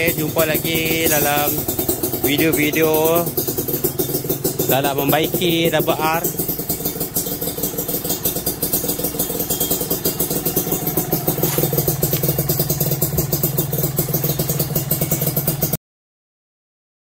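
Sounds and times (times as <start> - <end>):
two-stroke motorcycle engine idling: 0.0 - 15.8.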